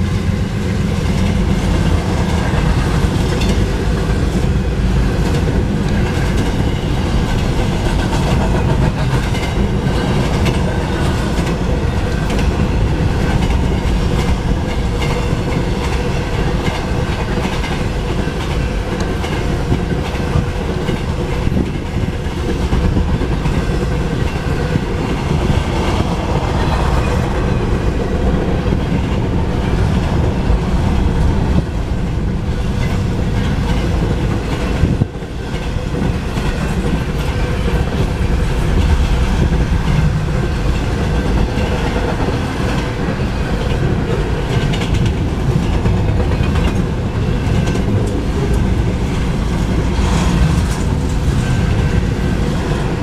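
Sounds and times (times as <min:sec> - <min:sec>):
steel wheels on rail: 0:00.0 - 0:53.0
wheels clacking on rail joints: 0:00.0 - 0:53.0.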